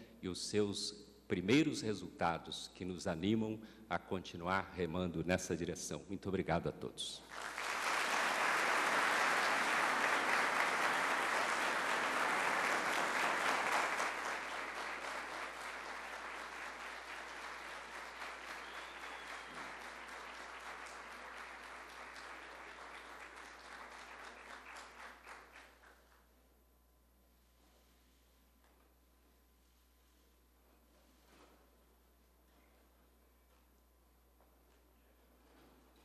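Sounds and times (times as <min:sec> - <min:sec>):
audience applauding: 0:07.3 - 0:26.1.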